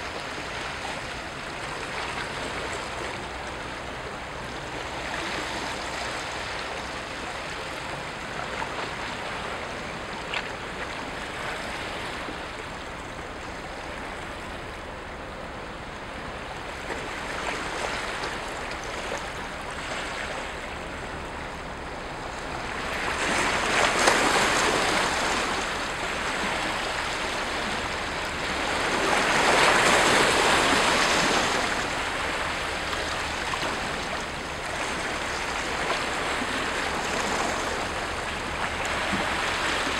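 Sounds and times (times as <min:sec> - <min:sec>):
waves lapping against rocks: 0:00.0 - 0:39.9.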